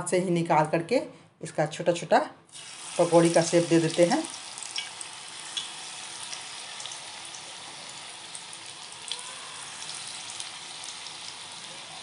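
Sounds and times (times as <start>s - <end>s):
oil sizzling in a frying pan: 2.5s - 12.0s.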